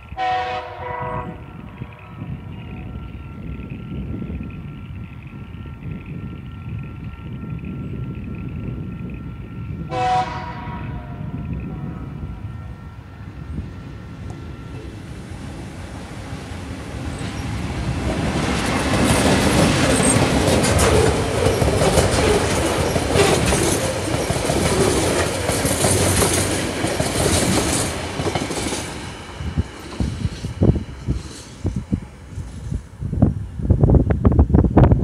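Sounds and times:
diesel locomotive rumble: 0.0 - 35.0
train wheels clattering over rail joints: 17.2 - 31.9.

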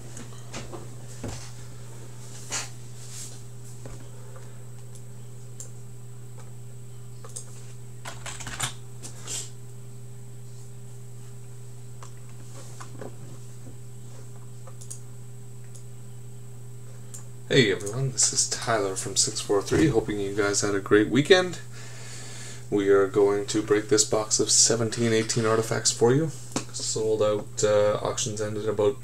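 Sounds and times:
steady low hum: 0.0 - 29.0
short clicks and light taps: 7.2 - 7.5.

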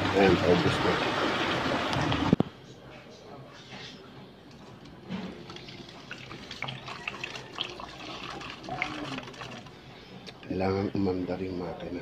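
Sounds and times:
liquid pouring and splashing: 0.0 - 2.4, 5.1 - 9.9.

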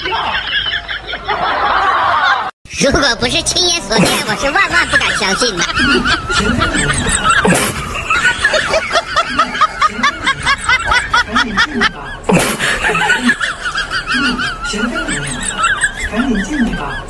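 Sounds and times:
cartoonish snickering laugh: 4.0 - 17.0.

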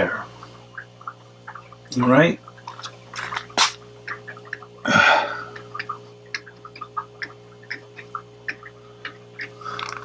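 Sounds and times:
low electrical hum: 0.0 - 10.0.

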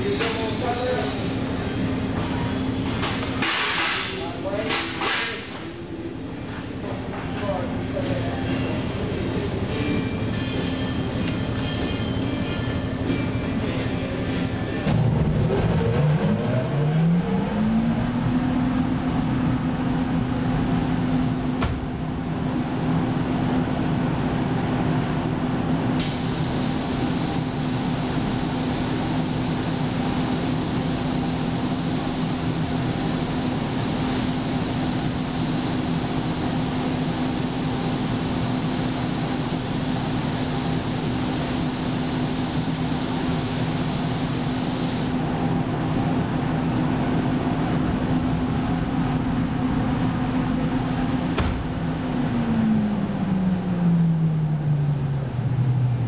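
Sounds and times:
thin high whine: 0.0 - 19.6, 26.0 - 45.7
fan humming: 0.0 - 54.3
high air hiss: 26.0 - 45.3.

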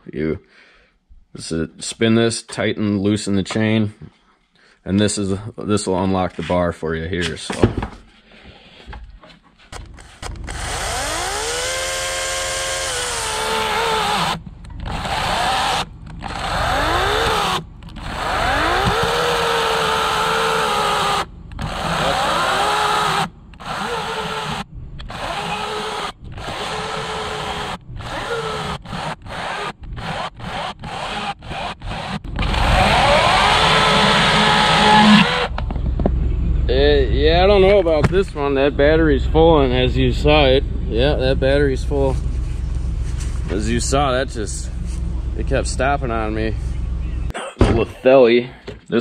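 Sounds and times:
electric chainsaw cutting log: 9.8 - 35.6.

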